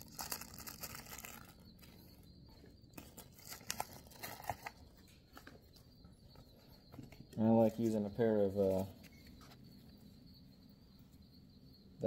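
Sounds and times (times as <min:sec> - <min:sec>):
plastic bag rustling: 0:00.0 - 0:01.6.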